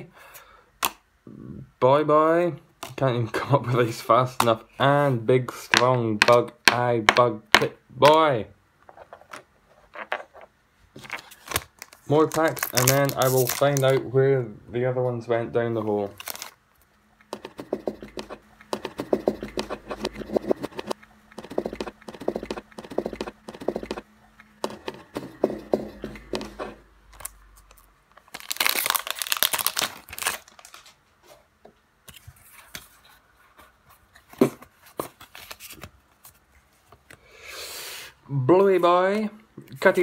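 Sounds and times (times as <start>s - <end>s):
cards rustling: 10.9s - 14.1s, 15.8s - 16.6s, 17.2s - 31.0s, 34.2s - 37.2s
foil wrapper crinkling: 11.0s - 14.0s, 16.1s - 16.6s, 27.2s - 31.0s
foil wrapper tearing open: 11.2s - 14.0s, 16.1s - 16.6s, 27.2s - 31.0s.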